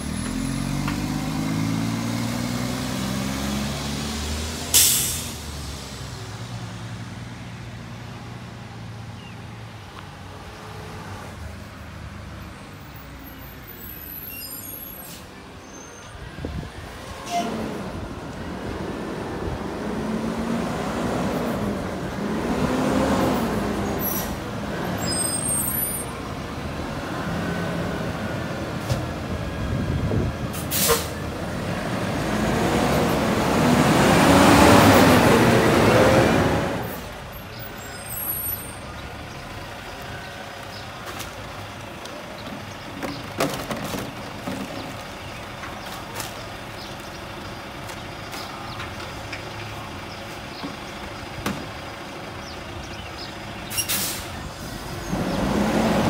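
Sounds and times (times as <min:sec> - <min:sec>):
garbage truck engine: 0:00.0 - 0:07.4, 0:17.0 - 0:56.0
air brakes hissing: 0:04.7 - 0:05.5, 0:30.6 - 0:31.2, 0:53.6 - 0:54.9
plastic bins clattering: 0:43.0 - 0:45.0.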